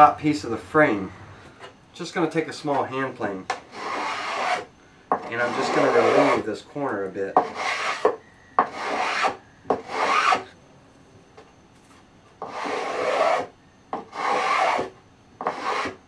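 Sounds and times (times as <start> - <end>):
hand plane shaving wood: 3.7 - 6.4, 7.4 - 10.4, 12.4 - 16.0.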